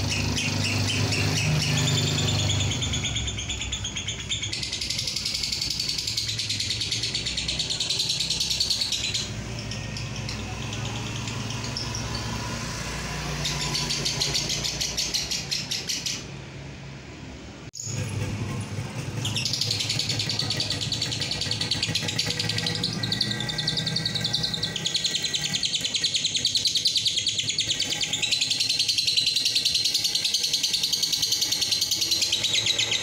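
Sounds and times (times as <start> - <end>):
lovebird chattering trill: 0.0 - 12.4, 19.2 - 33.0.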